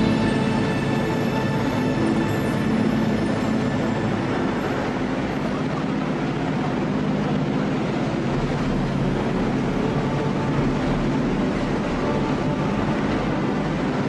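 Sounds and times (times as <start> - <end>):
boat engine humming: 0.0 - 14.0
churning wake rushing: 0.0 - 14.0.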